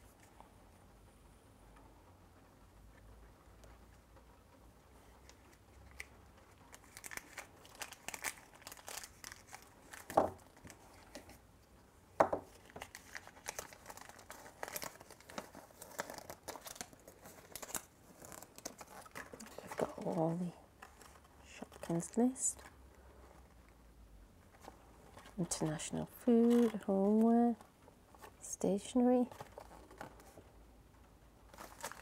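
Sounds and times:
plastic bag and paper crinkling: 5.0 - 11.5, 12.3 - 23.8, 24.4 - 30.7, 31.4 - 32.0.

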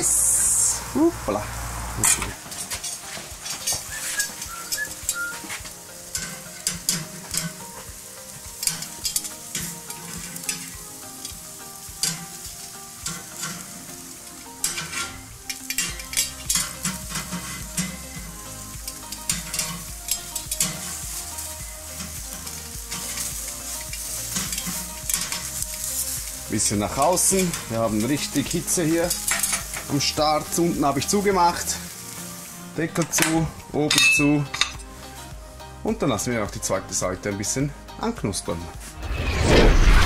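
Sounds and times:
meat sizzling on a grill: 0.0 - 39.0
metal tongs clicking on grate: 6.1 - 7.6, 8.6 - 11.3, 12.0 - 12.3, 14.6 - 18.0, 18.9 - 20.9, 23.9 - 25.7, 29.1 - 30.0, 33.0 - 34.8.

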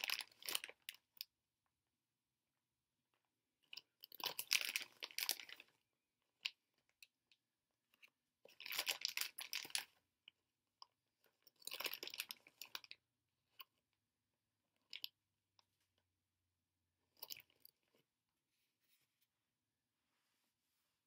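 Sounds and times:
plastic bag crinkling: 0.0 - 0.8, 4.2 - 5.6, 8.6 - 9.8, 11.7 - 12.8.

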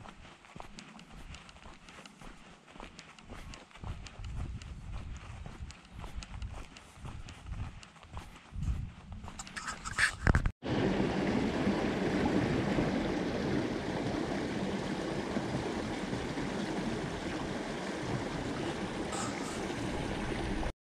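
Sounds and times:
running water rushing: 10.6 - 20.7.

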